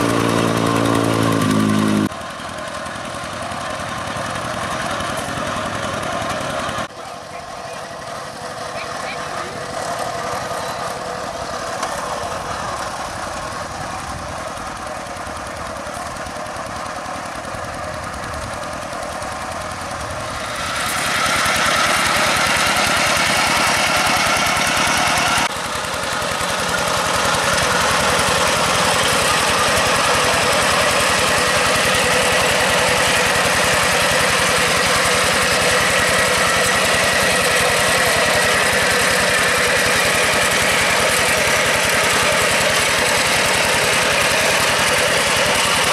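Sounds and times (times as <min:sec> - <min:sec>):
diesel engine knocking: 0:12.5 - 0:45.9.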